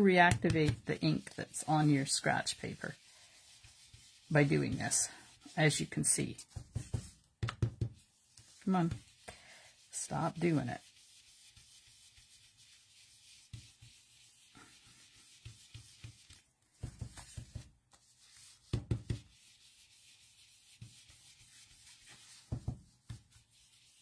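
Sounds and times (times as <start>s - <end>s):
brush tapping on card: 0.2s - 0.9s, 6.2s - 9.2s, 15.2s - 19.4s, 20.8s - 23.4s.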